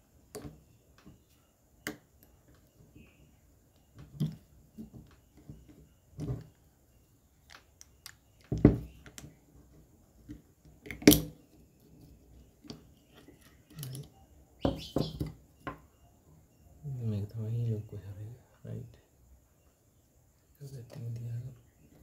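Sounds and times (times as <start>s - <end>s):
small metal parts clicking: 12.7s - 14.2s.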